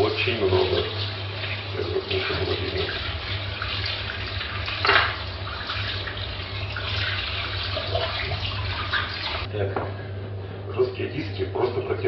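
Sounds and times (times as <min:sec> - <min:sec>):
hands rinsing under water: 0:00.0 - 0:09.5
tap running into sink: 0:00.6 - 0:09.5.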